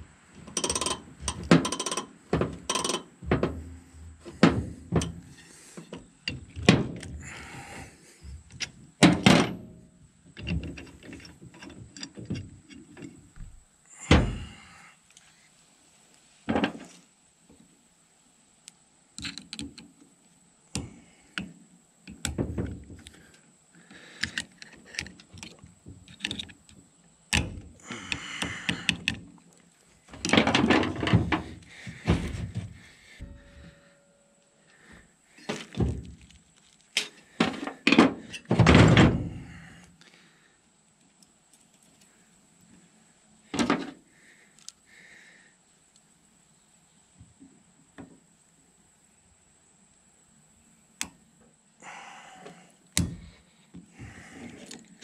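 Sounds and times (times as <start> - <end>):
metal tools knocking and clanking: 0.4 - 7.1, 33.2 - 34.1.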